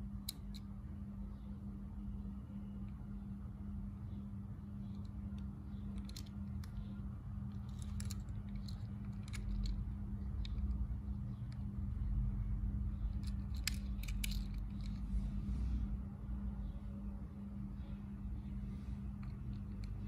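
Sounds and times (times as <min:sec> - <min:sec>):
low hum and rumble: 0:00.0 - 0:20.0
fingers clicking toy car: 0:04.9 - 0:10.8, 0:13.1 - 0:15.0.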